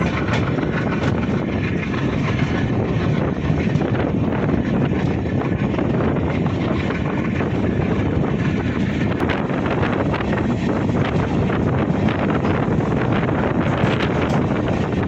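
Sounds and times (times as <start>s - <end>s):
passenger train running: 0.0s - 15.0s
wind on microphone: 0.0s - 15.0s.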